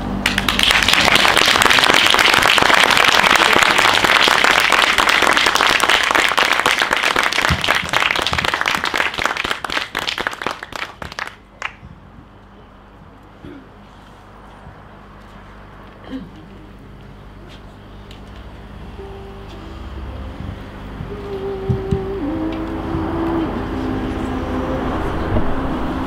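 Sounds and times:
audience applauding: 0:00.2 - 0:11.9.

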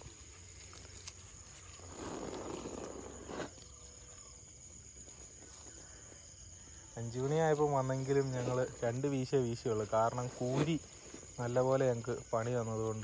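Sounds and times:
high insect drone: 0:00.0 - 0:13.0.

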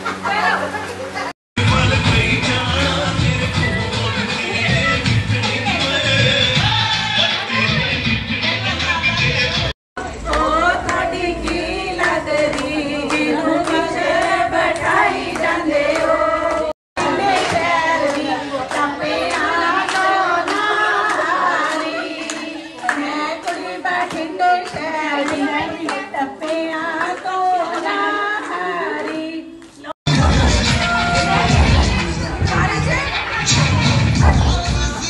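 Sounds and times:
woman singing: 0:10.0 - 0:29.9.

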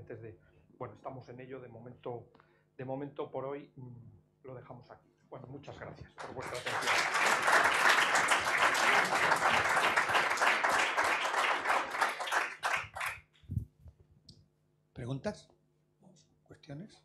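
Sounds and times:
audience applauding: 0:06.2 - 0:13.3.

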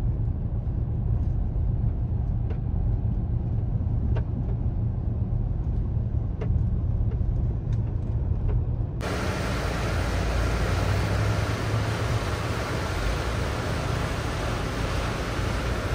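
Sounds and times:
car engine rumble and road noise: 0:00.0 - 0:15.9
river rapids rushing: 0:09.0 - 0:15.9.

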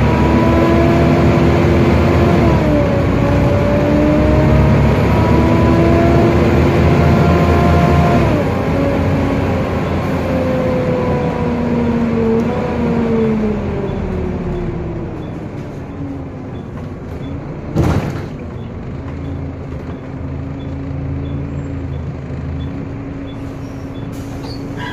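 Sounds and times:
bus driveline whine: 0:00.0 - 0:24.9
air brake hiss: 0:23.5 - 0:24.9.

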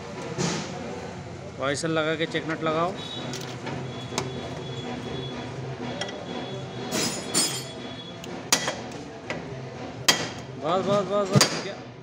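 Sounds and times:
metal tools clinking: 0:06.9 - 0:07.8.

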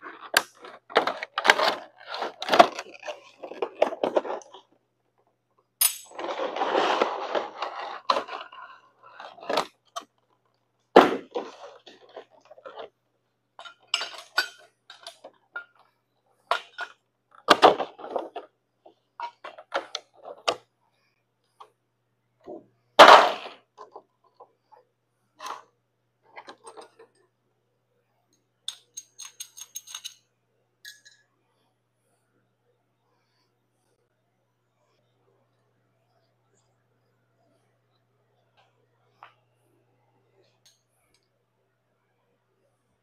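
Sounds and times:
metallic clinks and knocks: 0:05.8 - 0:06.3, 0:28.7 - 0:31.2.

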